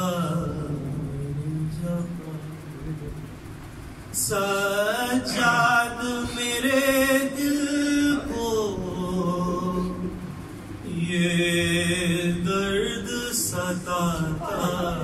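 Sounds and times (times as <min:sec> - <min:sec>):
man singing into a microphone: 0:10.9 - 0:15.0.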